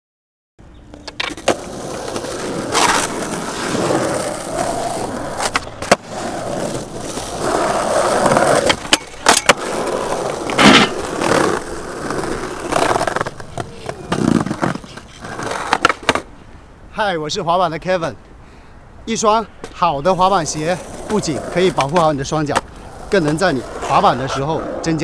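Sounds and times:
skateboard wheels rolling on concrete: 0.6s - 18.3s, 19.0s - 25.0s
skateboard clacking on ground: 0.9s - 16.3s, 20.8s - 24.3s.

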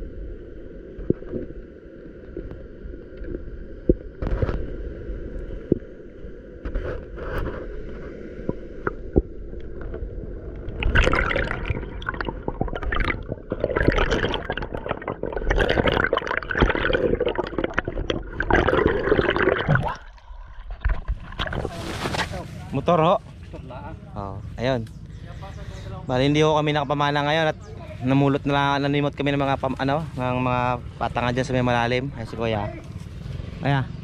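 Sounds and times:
water gurgling and splashing: 0.9s - 22.1s.

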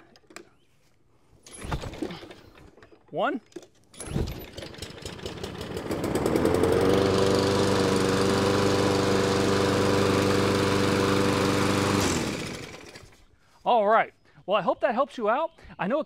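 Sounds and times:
lawn mower engine running: 4.3s - 13.2s.

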